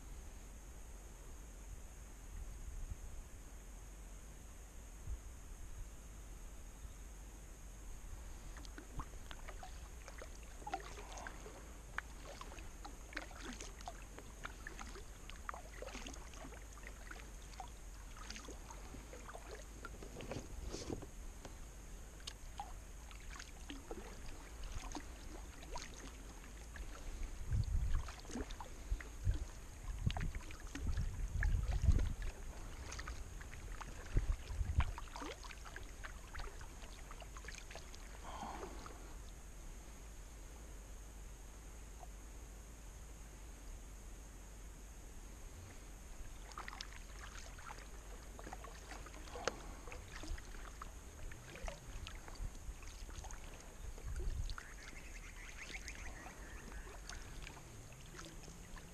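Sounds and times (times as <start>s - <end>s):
paddle water drips and splashes: 8.2s - 39.4s, 45.7s - 58.9s.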